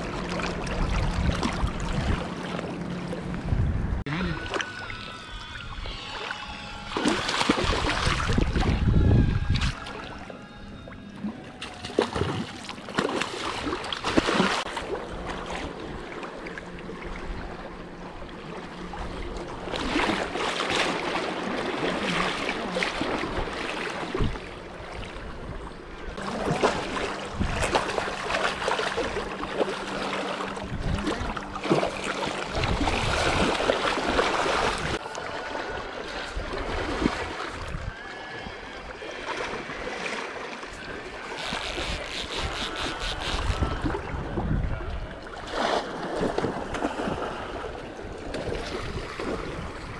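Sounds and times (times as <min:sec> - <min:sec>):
low steady hum: 0:00.0 - 0:49.9
fish thrashing and splashing: 0:06.1 - 0:08.8, 0:11.6 - 0:15.0, 0:26.2 - 0:35.0.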